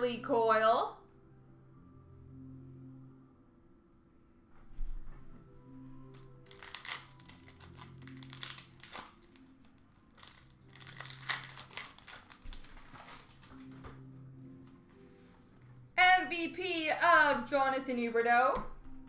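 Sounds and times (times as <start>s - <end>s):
soft background music: 0.0s - 19.0s
trading cards crinkling: 6.1s - 13.9s.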